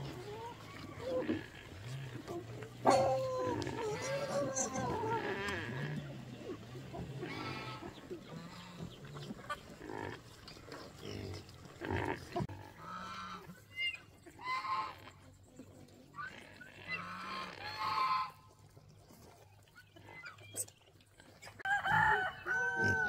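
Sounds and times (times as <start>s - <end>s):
pigs squealing: 0.0s - 10.2s, 11.0s - 15.2s, 16.0s - 18.5s, 22.0s - 23.0s.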